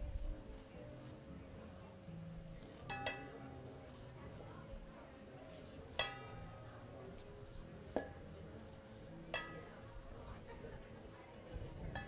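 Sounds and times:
blade clinking on metal bowl: 2.8 - 3.6, 5.9 - 6.5, 9.3 - 9.8.

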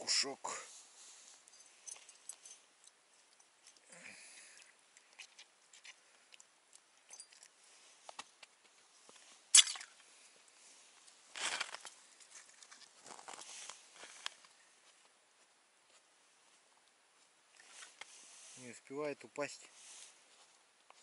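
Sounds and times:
tackle clicks and scrapes: 4.6 - 10.1, 11.0 - 14.6, 17.5 - 18.6
clothing rustling: 10.6 - 15.1.

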